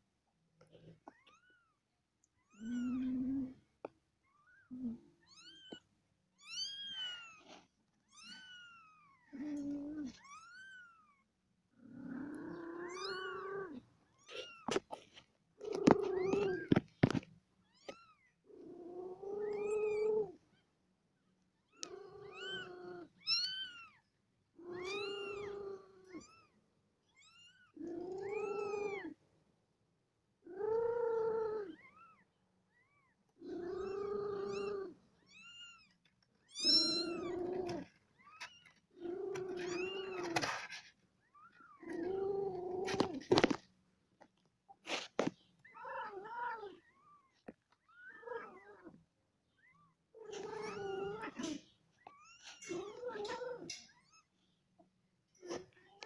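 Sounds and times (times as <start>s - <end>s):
cat meowing: 36.5s - 38.5s.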